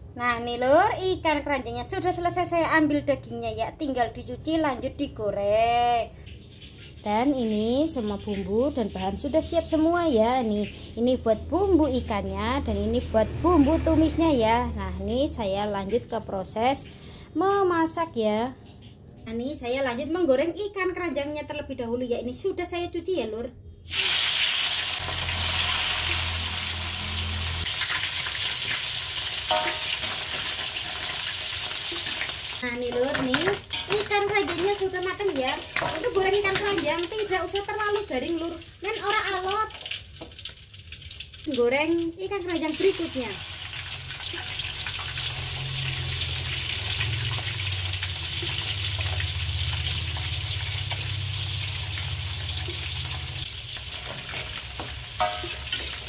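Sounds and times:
metal spatula scraping wok: 0:23.9 - 0:36.8, 0:48.3 - 0:56.0
fish frying in hot oil: 0:23.9 - 0:56.0.

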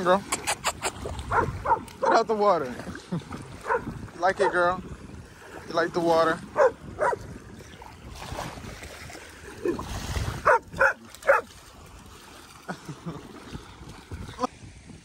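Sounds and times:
dog yelping: 0:00.4 - 0:02.2, 0:06.6 - 0:07.2, 0:10.4 - 0:11.5
dog barking: 0:01.3 - 0:02.2, 0:03.6 - 0:04.6, 0:06.6 - 0:07.2, 0:10.4 - 0:11.5.

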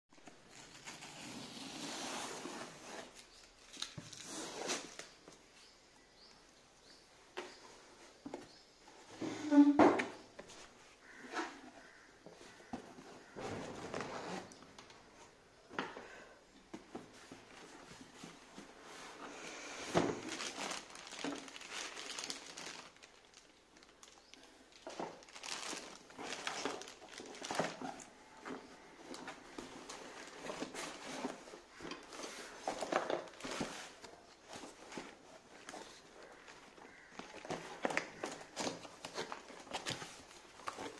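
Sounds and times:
cardboard rustling and scraping: 0:00.5 - 0:05.3, 0:07.5 - 0:15.4, 0:16.7 - 0:23.0, 0:24.8 - 0:40.9
plastic bags crinkling: 0:20.0 - 0:28.2, 0:29.1 - 0:40.9.

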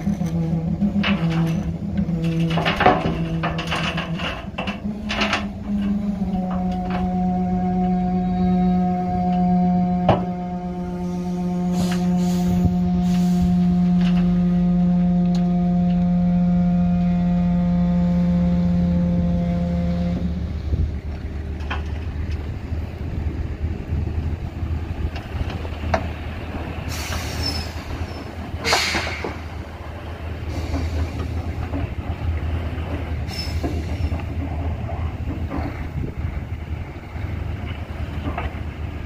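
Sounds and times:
metallic knocks: 0:00.0 - 0:08.0
diesel truck engine: 0:00.0 - 0:39.0.

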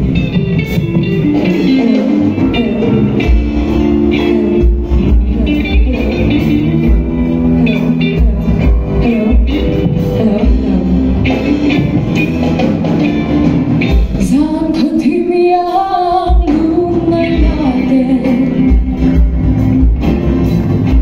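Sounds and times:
drums: 0:00.0 - 0:21.0
electric guitars: 0:00.0 - 0:21.0
lead singer singing: 0:01.3 - 0:12.4, 0:14.1 - 0:19.3.

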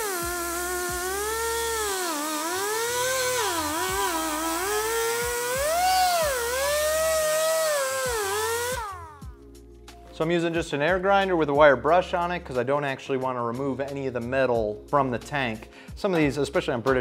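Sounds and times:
air grinder wire brush whine: 0:00.0 - 0:09.4
air hiss: 0:00.0 - 0:09.4.

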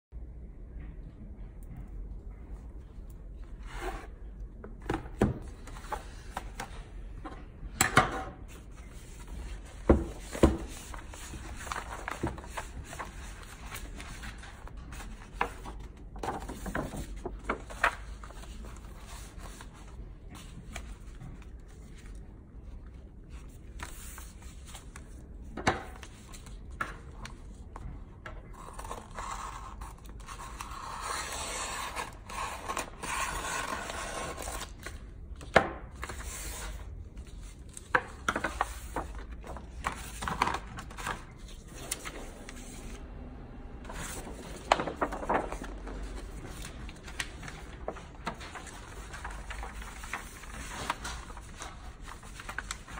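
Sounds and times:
paper and plastic film rustling: 0:08.6 - 0:22.2, 0:43.9 - 0:52.9.

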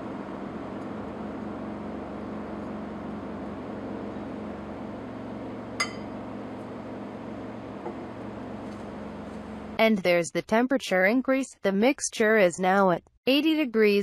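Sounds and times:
fan-like hum: 0:00.0 - 0:10.0
glass clink: 0:05.8 - 0:06.2.

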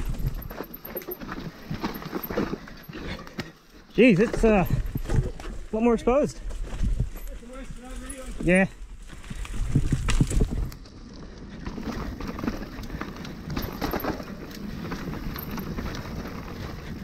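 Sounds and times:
wind buffeting microphone: 0:00.0 - 0:00.6, 0:06.4 - 0:12.3
bike frame and chain rattling: 0:00.0 - 0:05.8, 0:06.6 - 0:17.0
bike tyres crunching on dirt: 0:00.0 - 0:17.0.

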